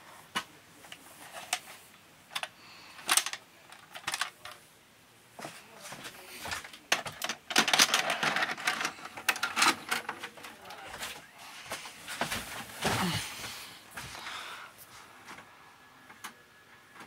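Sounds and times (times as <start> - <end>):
video cassette clicks and rattles: 2.3 - 4.6, 6.5 - 10.8.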